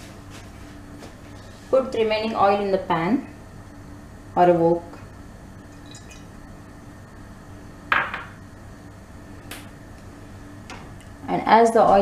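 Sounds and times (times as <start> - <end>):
faint steady hum: 0.0 - 12.0
kitchenware clink: 5.8 - 6.3.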